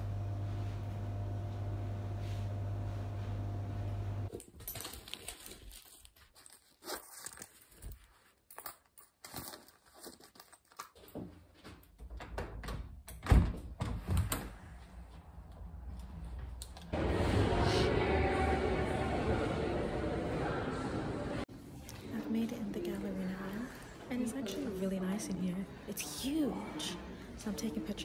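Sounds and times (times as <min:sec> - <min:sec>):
rustling and crinkling: 0:04.3 - 0:11.9.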